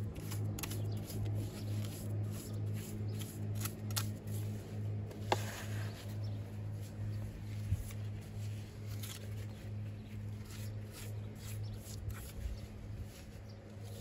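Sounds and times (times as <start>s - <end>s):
pulsing low hum: 0.0s - 14.0s
scratching and scraping strokes: 0.0s - 14.0s.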